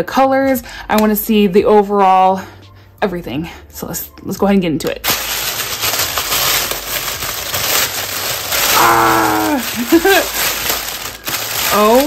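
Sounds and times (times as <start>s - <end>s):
plastic bag crinkling: 5.0s - 12.0s
plastic bag tearing: 5.0s - 12.0s.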